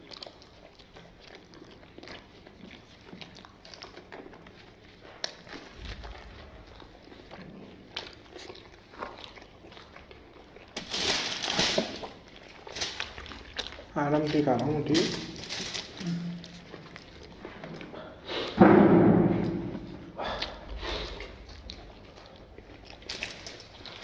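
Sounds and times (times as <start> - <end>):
quiet chewing and lip smacks: 0.0 - 10.8, 12.0 - 14.8, 15.8 - 18.6, 19.8 - 24.0
bread tearing: 10.7 - 17.3, 22.8 - 24.0.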